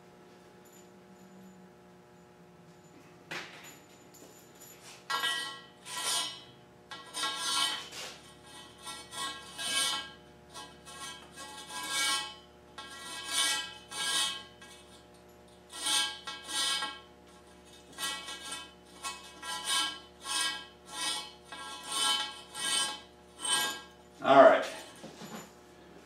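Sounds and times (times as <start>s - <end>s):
cable scraping inside metal pipe: 5.1s - 24.0s.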